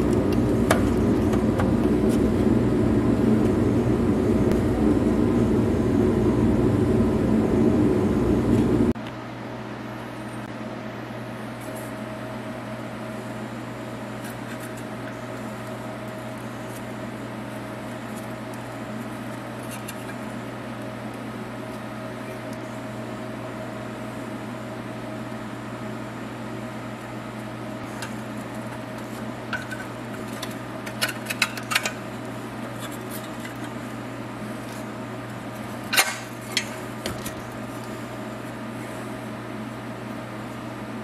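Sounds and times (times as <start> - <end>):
background hum: 0.0 - 41.0.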